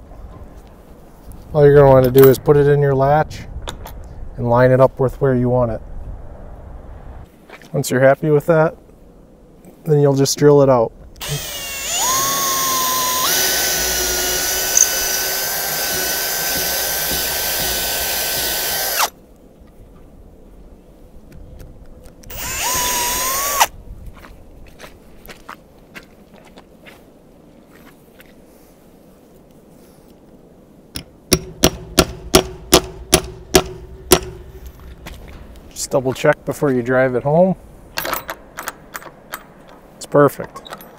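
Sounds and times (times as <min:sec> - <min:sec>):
cordless drill motor whine: 0:11.2 - 0:19.1, 0:22.3 - 0:23.7
hammer blows ringing on metal: 0:31.3 - 0:34.5.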